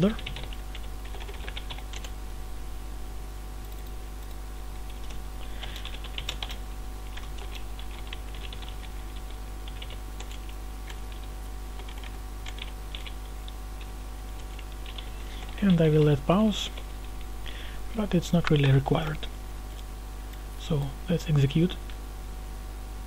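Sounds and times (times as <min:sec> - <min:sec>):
typing on computer keyboard: 0:00.0 - 0:02.1, 0:03.7 - 0:15.6
steady low hum: 0:00.0 - 0:23.0.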